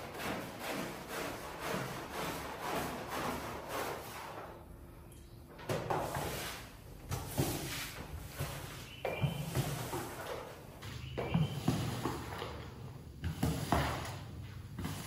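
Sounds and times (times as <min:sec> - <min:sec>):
cleaning tool scrubbing wet rug: 0:00.0 - 0:04.4.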